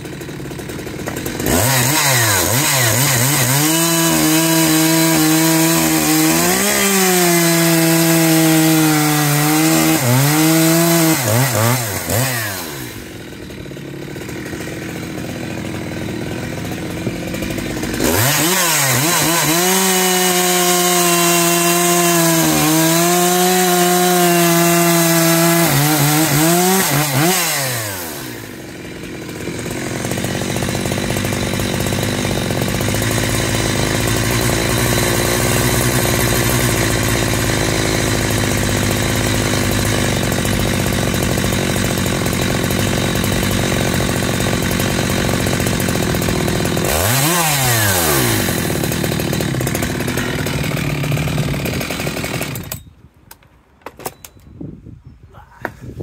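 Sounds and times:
chainsaw revving and idling: 0.0s - 52.9s
chainsaw cutting wood: 0.0s - 54.6s.

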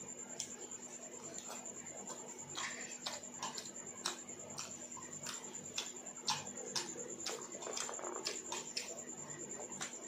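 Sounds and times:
faint high whine: 0.0s - 10.0s
wet chewing and squishing: 1.2s - 10.0s.

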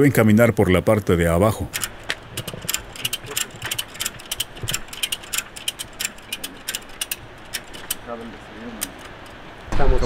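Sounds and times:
ratchet strap clicking: 1.7s - 8.1s, 8.7s - 9.4s.

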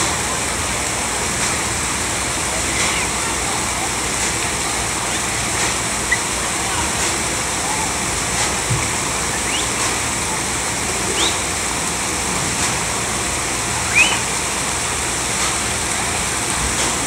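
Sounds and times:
water spraying from fountains: 0.0s - 17.0s
children squealing: 13.9s - 14.3s.

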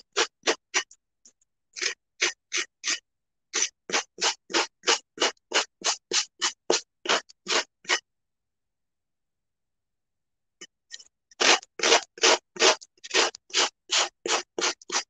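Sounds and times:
sanding block scraping tile edge: 0.0s - 0.9s, 1.8s - 8.0s, 11.4s - 15.0s.

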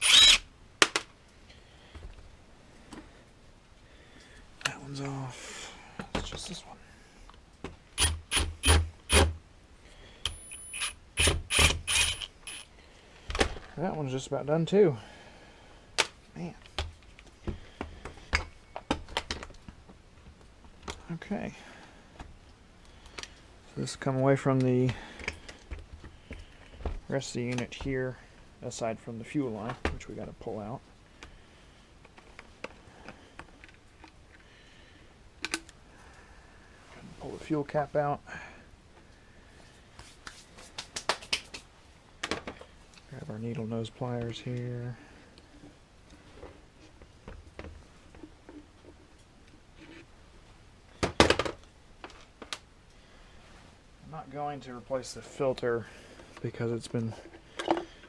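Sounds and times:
cordless driver backing out screw: 10.3s - 12.6s.

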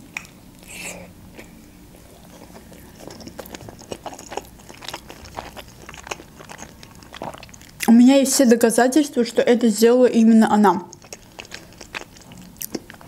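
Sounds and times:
biting into dumpling: 0.1s - 7.9s, 10.9s - 13.0s
wet chewing: 0.1s - 8.0s, 10.7s - 13.0s.

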